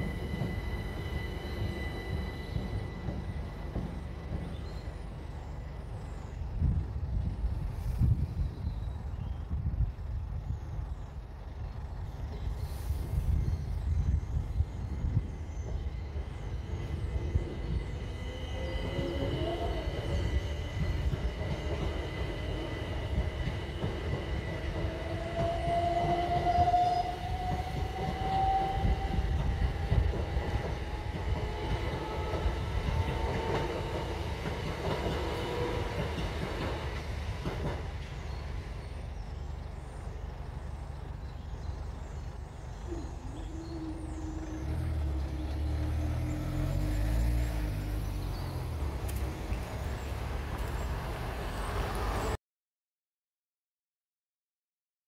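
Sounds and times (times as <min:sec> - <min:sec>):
train motor whine: 0:00.0 - 0:08.3, 0:10.7 - 0:37.4, 0:42.6 - 0:50.0
train wheels rumbling on rails: 0:00.0 - 0:52.4.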